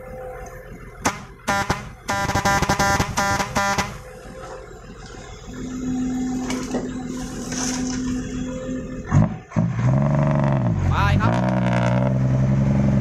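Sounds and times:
diesel engines running: 0.0s - 13.0s.

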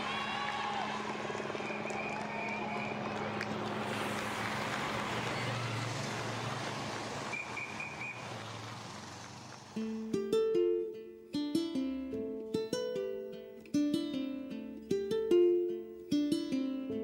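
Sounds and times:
car engine humming: 0.0s - 10.2s
motorbike engine passing: 0.0s - 10.2s
outdoor noise: 0.0s - 12.7s
ukulele music: 9.8s - 17.0s.

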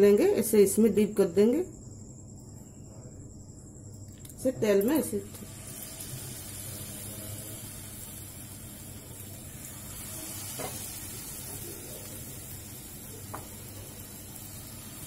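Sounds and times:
food sizzling in hot oil: 4.9s - 15.0s.

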